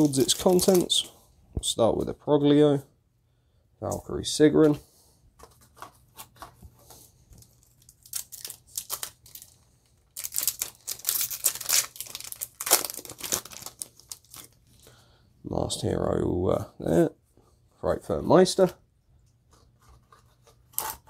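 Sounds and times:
foil wrapper crinkling and tearing: 0.0 - 1.0, 7.4 - 14.8, 20.0 - 21.0.

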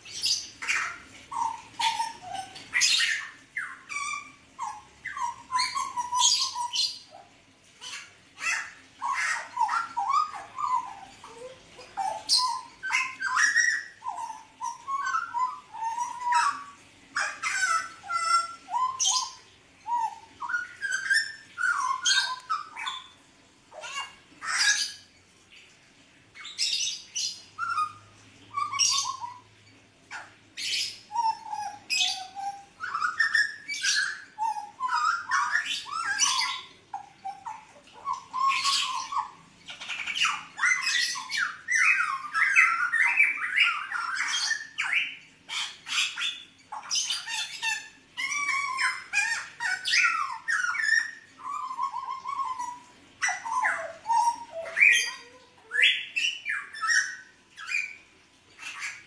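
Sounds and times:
bird harsh squawking calls: 0.0 - 25.1.

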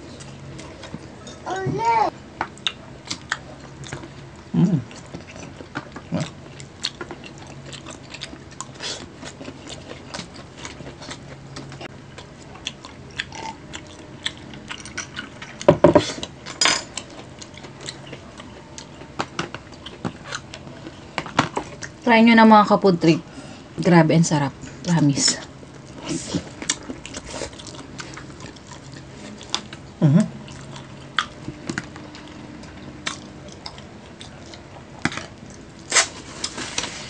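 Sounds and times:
chewing and mouth clicks: 2.5 - 4.2, 4.9 - 21.0, 25.8 - 36.0.

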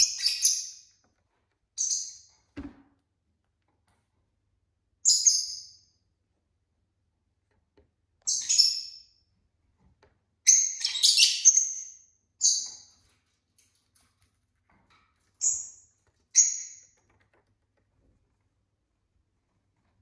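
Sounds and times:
lovebird chirping: 0.0 - 0.9, 8.3 - 9.1, 10.4 - 12.9.

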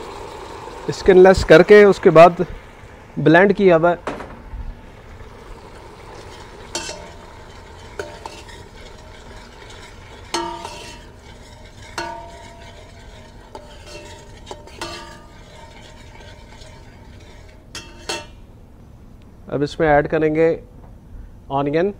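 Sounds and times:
low sizzle of frying: 0.0 - 19.0
metal ladle clinking against pot: 6.2 - 18.4.

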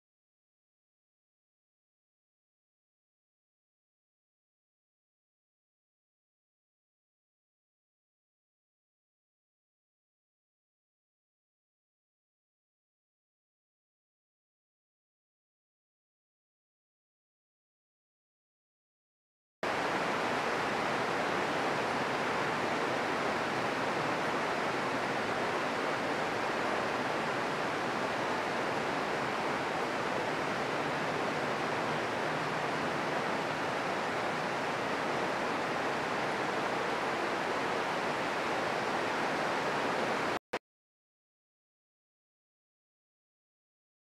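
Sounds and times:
rain falling on leaves: 19.7 - 40.4.

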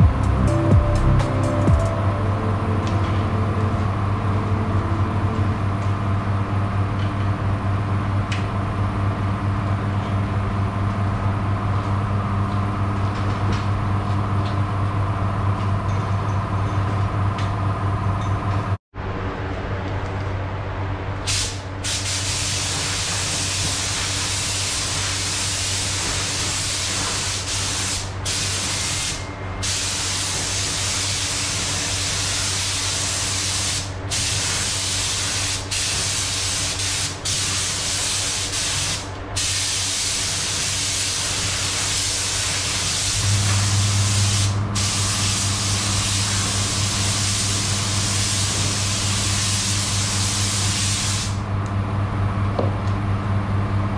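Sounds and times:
low machine hum: 0.0 - 27.4, 42.0 - 53.9
paint spray gun hissing: 21.3 - 51.4.

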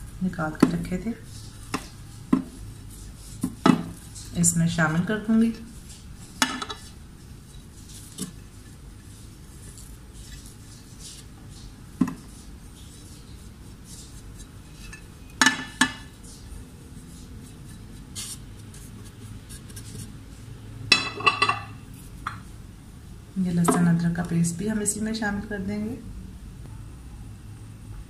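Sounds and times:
glass dish clinking on bowl: 20.9 - 21.8.

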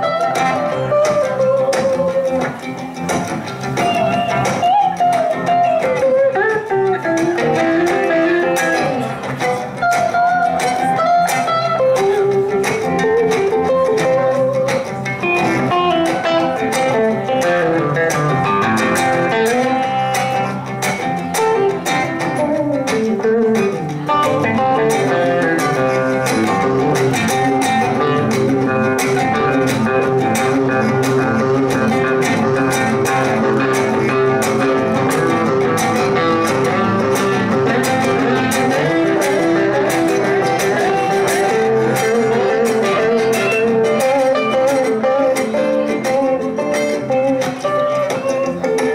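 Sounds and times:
electric guitar lead lines: 0.0 - 48.9
strummed rhythm guitars: 0.0 - 48.9.

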